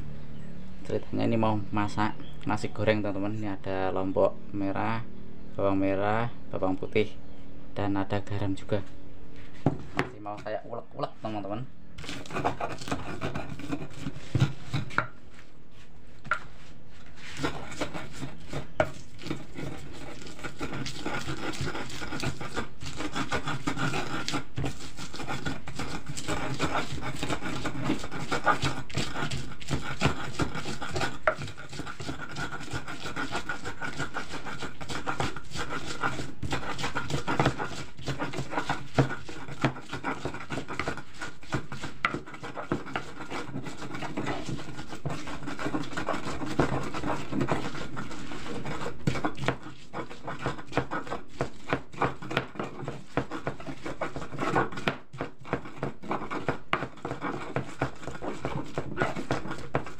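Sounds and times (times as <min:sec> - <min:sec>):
pestle grinding in a mortar: 0:12.0 - 0:15.2, 0:16.2 - 0:59.9
pestle knocking against bowl: 0:20.7 - 0:47.8.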